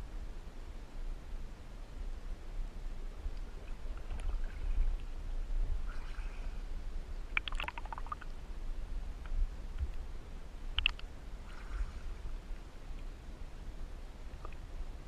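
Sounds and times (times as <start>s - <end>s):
steady low rumble: 0.0s - 15.0s
water lapping and splashing: 3.4s - 8.3s, 10.8s - 12.8s
small splashes and drips: 7.3s - 8.4s.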